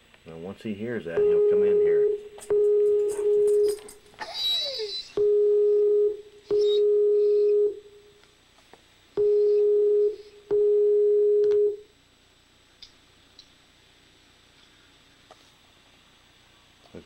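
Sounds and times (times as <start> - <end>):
video call ringing tone: 1.1 - 4.0, 4.6 - 7.8.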